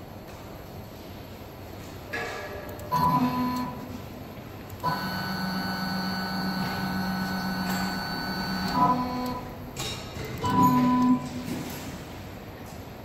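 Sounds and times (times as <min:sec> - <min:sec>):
stepper motor whining: 0:04.8 - 0:09.5.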